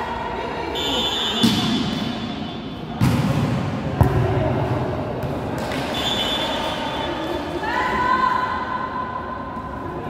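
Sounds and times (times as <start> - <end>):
sports hall noise: 0.0 - 10.0
volleyball being hit: 1.4 - 2.3, 3.0 - 5.9.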